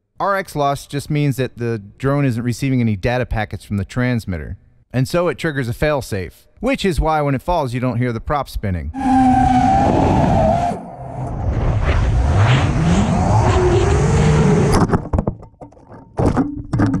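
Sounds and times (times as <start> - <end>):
high whine: 9.0 - 14.8
wind rushing over camera: 9.0 - 14.9.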